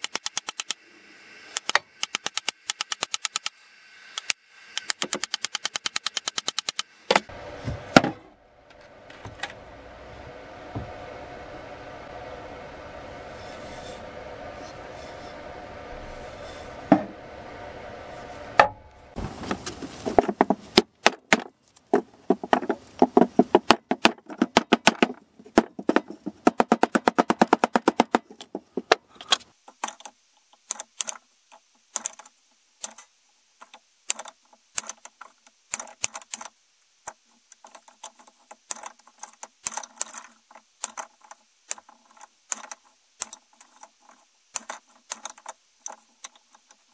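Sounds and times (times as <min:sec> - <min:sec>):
steady hum: 0:00.0 - 0:29.5
wood knocks and clicks: 0:20.1 - 0:29.0
hatchet chopping wood: 0:20.2 - 0:29.0.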